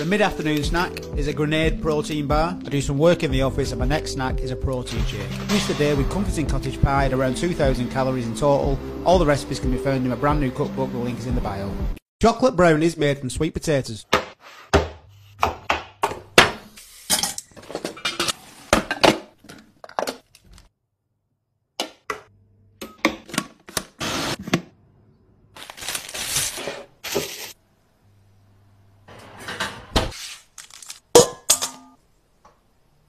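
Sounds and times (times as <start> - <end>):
metal bowl and utensils clinking: 4.9 - 6.1.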